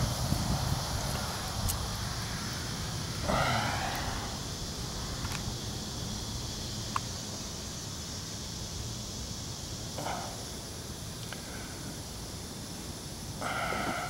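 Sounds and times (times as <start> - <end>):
outdoor background hiss: 0.0 - 14.0
breathy puff of air: 3.2 - 4.5, 13.4 - 14.0
faint ticks: 5.2 - 5.5, 6.9 - 7.1, 11.2 - 11.6.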